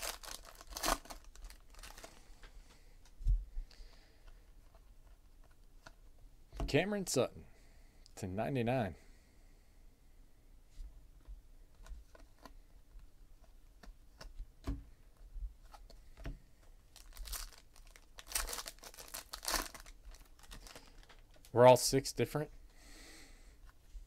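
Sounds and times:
foil wrapper crinkling and tearing: 0.0 - 2.3, 16.9 - 21.6.

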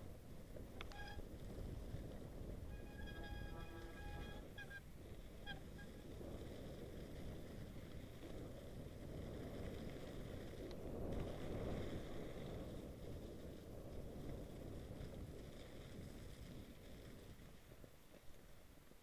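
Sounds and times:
wind on microphone: 0.0 - 18.0
bike rattling: 0.0 - 18.3
bike tyres rumbling over snow: 0.0 - 19.0
high squeak: 0.8 - 1.2, 2.7 - 4.8.

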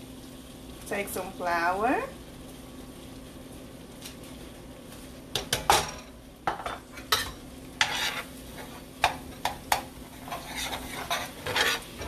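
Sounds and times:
light sizzle: 0.0 - 12.0
metal spoon scraping a skillet: 6.6 - 12.0.

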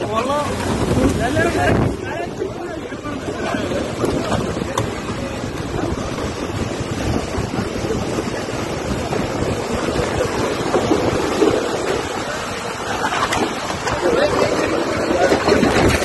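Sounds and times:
gusting wind: 0.0 - 16.0
pouring rain: 0.0 - 16.0.

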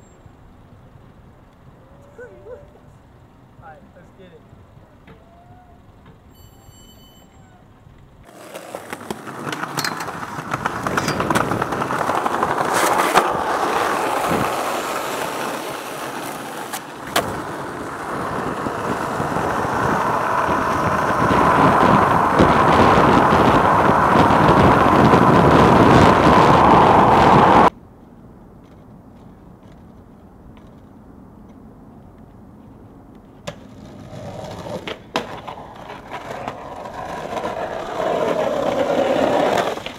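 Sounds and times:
skateboard wheels rolling on asphalt: 0.0 - 3.6, 4.4 - 39.9
skateboard clacks: 8.2 - 27.7, 33.1 - 39.9.

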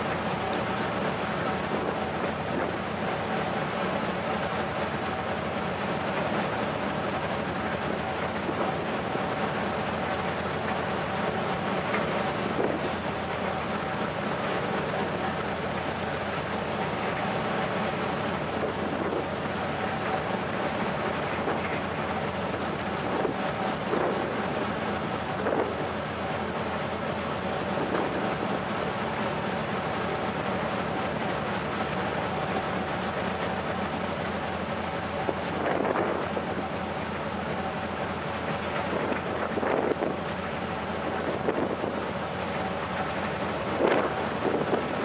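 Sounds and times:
ferry engines humming: 0.0 - 45.0
wind on microphone: 35.3 - 36.7, 43.7 - 45.0.

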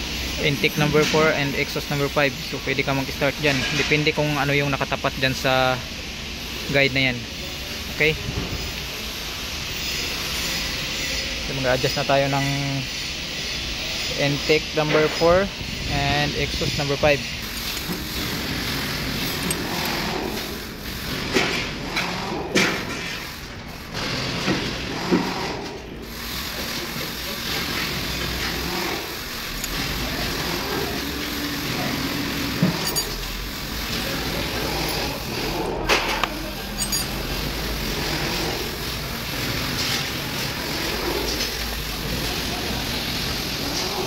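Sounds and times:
steady background noise: 0.0 - 44.0
wrench clicking on metal: 29.5 - 29.8, 32.6 - 33.3, 36.2 - 37.2
metallic clinks of hand tool: 32.8 - 33.3, 36.7 - 37.2.

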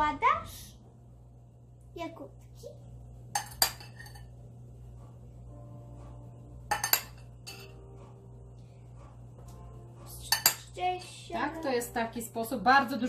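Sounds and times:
metal spoon clinking on glass bowl: 3.3 - 4.3, 6.7 - 7.8, 10.3 - 10.7.

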